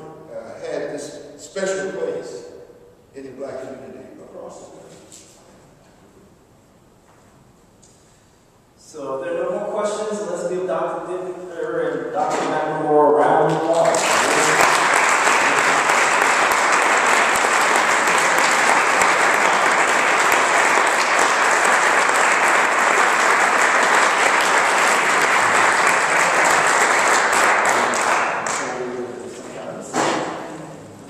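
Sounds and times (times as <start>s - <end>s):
audience applauding: 13.5s - 29.0s.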